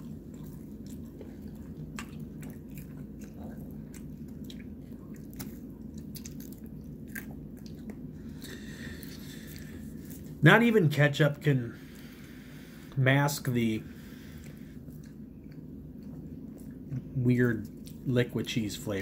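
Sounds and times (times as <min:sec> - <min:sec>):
wet mouth chewing clicks: 0:00.0 - 0:10.3
steady low hum: 0:00.0 - 0:19.0.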